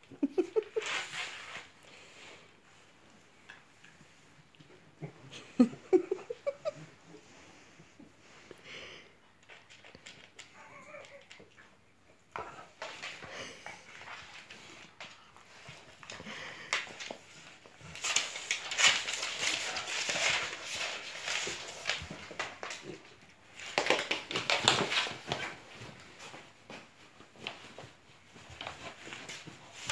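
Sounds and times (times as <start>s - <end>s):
dogs scuffling on wooden floor: 12.3s - 29.9s.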